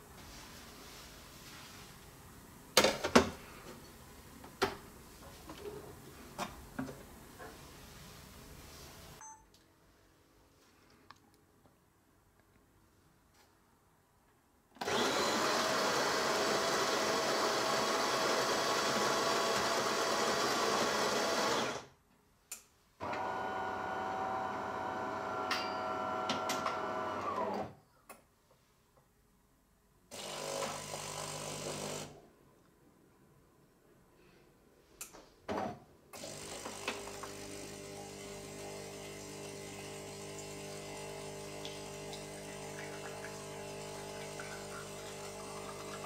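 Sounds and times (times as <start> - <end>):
coffee grinder running: 14.8 - 21.9, 23.0 - 27.5, 36.2 - 46.0
pump humming: 36.3 - 46.0.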